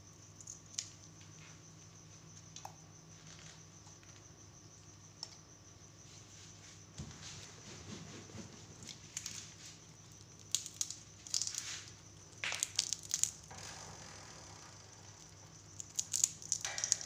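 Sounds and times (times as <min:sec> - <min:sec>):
parakeets cracking peanuts: 0:08.9 - 0:17.0.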